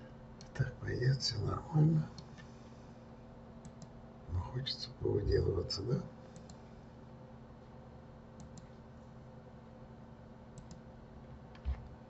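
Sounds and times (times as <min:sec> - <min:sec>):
low electrical hum: 0:00.0 - 0:12.0
computer mouse clicks: 0:03.6 - 0:03.9, 0:06.3 - 0:06.6, 0:08.4 - 0:08.8, 0:10.6 - 0:10.8.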